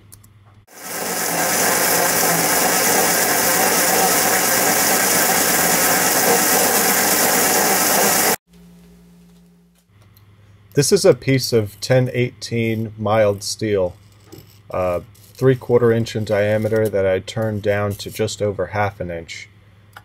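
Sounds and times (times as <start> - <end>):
metal lathe running: 0.7 - 8.4.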